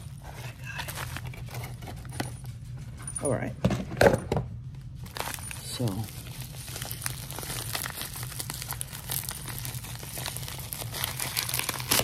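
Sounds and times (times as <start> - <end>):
bubble wrap crinkling: 0.0 - 2.1, 5.0 - 12.0.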